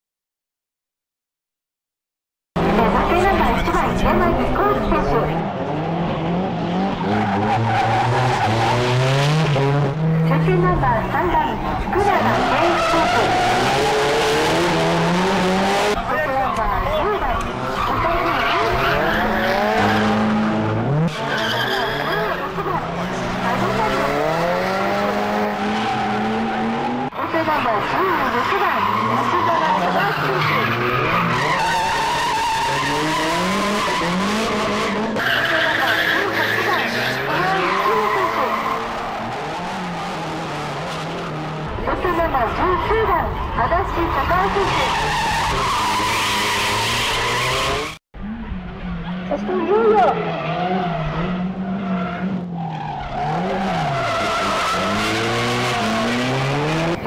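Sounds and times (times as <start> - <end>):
car engine revving: 2.6 - 57.0
tyres skidding and squealing: 2.6 - 57.0
tyres squealing: 11.4 - 14.4, 25.0 - 40.1.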